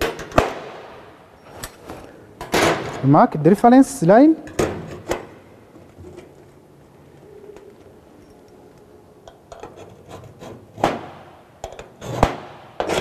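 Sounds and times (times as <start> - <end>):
scriber scraping steel plate: 9.3 - 11.0, 11.6 - 13.0.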